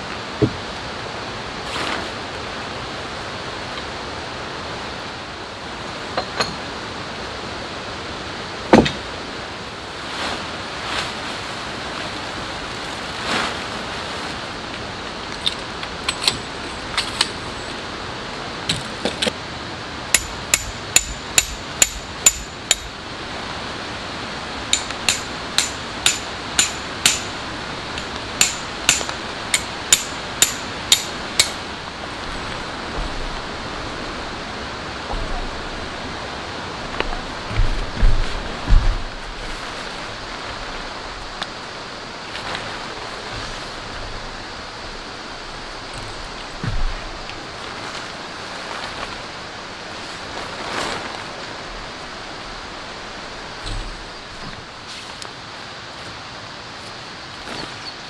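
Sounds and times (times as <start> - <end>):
rain hiss: 0.0 - 58.0
tent peg hammering clinks: 15.4 - 17.4, 20.2 - 22.9, 24.7 - 27.4, 28.0 - 31.6
knocks and rustles: 36.9 - 40.6, 45.9 - 49.2, 53.6 - 54.7.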